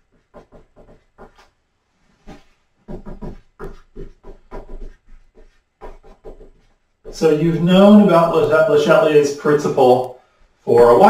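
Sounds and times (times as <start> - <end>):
marker squeaking on whiteboard: 0.0 - 1.6, 2.2 - 7.6.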